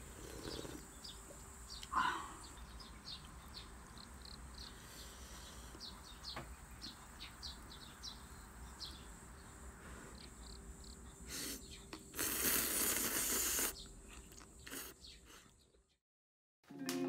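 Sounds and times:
faint outdoor ambience: 0.0s - 16.0s
noodles being slurped: 12.1s - 15.0s.

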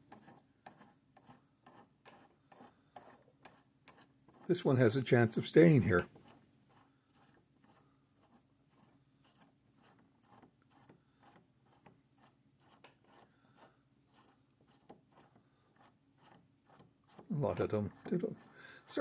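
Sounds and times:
faint ticking of lead screw: 0.1s - 4.5s, 6.2s - 19.0s.

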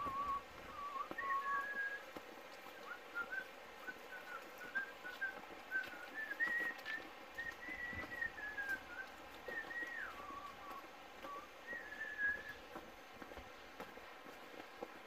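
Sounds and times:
person whistling a tune: 0.0s - 2.0s, 3.2s - 12.6s.

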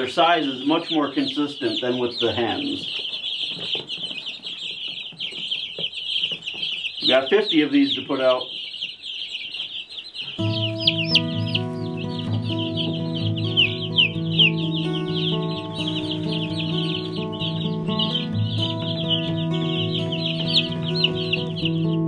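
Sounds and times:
chicks peeping: 0.0s - 22.0s
background music: 10.4s - 22.0s.

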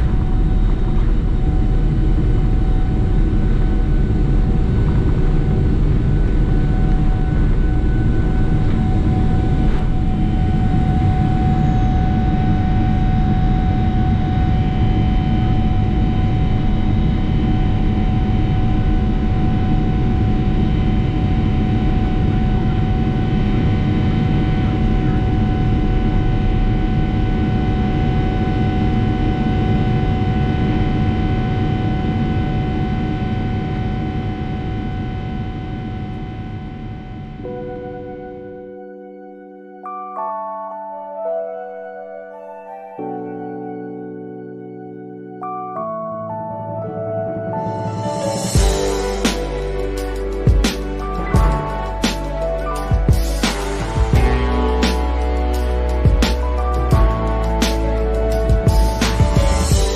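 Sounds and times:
engine fan whine: 0.0s - 37.5s
jet engine rumble: 0.0s - 37.6s.

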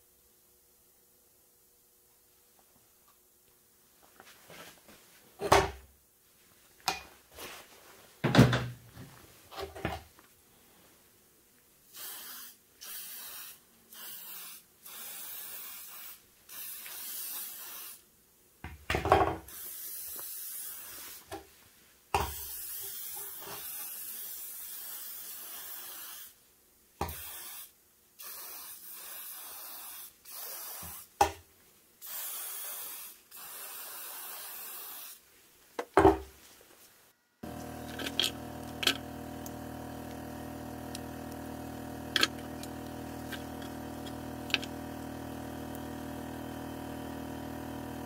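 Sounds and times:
aerosol spray hissing: 11.9s - 18.0s, 19.5s - 21.3s, 22.2s - 26.4s, 27.0s - 31.2s, 32.0s - 35.2s, 37.4s - 48.0s.

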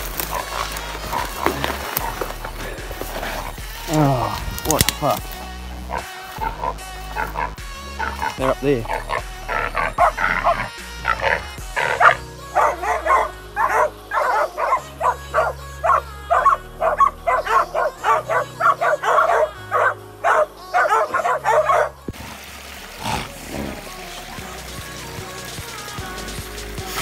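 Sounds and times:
dogs barking rapidly: 0.0s - 2.4s, 5.9s - 22.1s
background music low notes: 0.0s - 27.0s.

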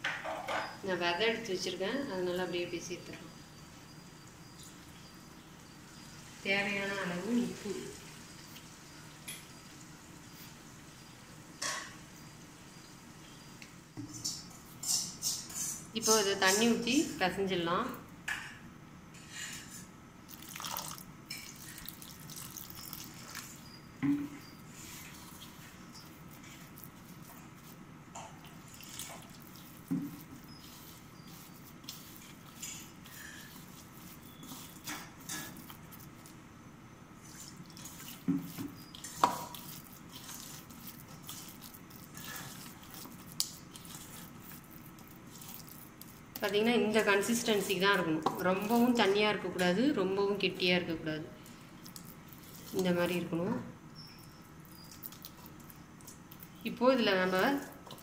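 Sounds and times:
water pouring into steel bowl: 20.3s - 23.6s
hand squeezing wet paste: 20.3s - 27.8s, 28.4s - 36.4s, 37.2s - 49.1s, 51.4s - 53.2s, 54.0s - 58.0s.

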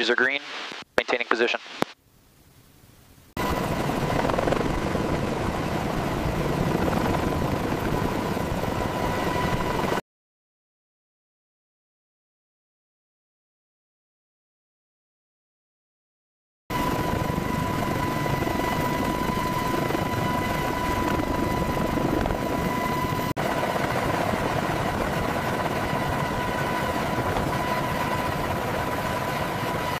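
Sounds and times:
helicopter hovering: 3.4s - 10.0s, 16.7s - 30.0s.

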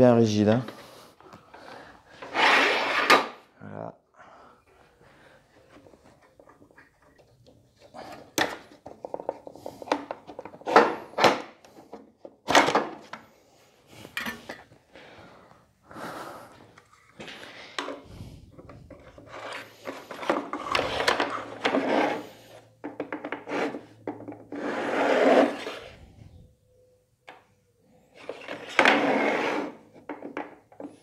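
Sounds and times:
fence scraping along metal table: 2.2s - 3.3s, 19.0s - 22.6s, 23.4s - 26.0s, 28.2s - 29.9s.

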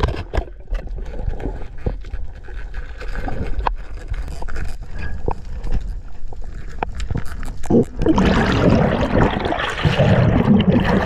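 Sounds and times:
sharp clicks and crackles: 0.0s - 8.2s
underwater rumble of moving water: 0.0s - 11.0s.

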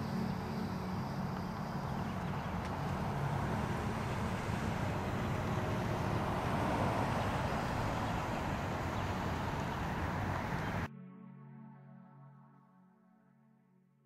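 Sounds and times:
outdoor rumble and hiss: 0.0s - 10.9s
soft synthesizer music: 0.0s - 14.0s.

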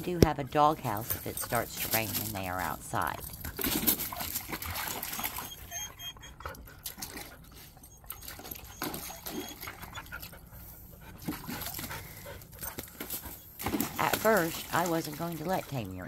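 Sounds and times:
dogs panting: 0.0s - 14.8s
dogs snuffling: 0.3s - 14.6s
dogs scuffling: 0.5s - 5.5s.

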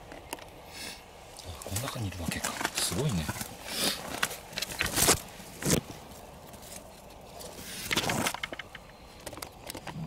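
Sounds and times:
leafy plants rustling: 1.2s - 8.9s
small clicks and ticks: 7.9s - 10.0s.

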